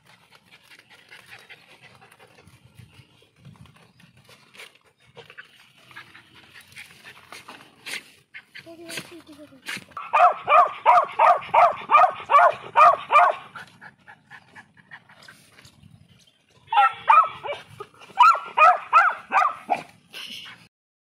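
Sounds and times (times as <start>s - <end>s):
puppy yipping: 10.0s - 13.4s, 16.7s - 19.9s.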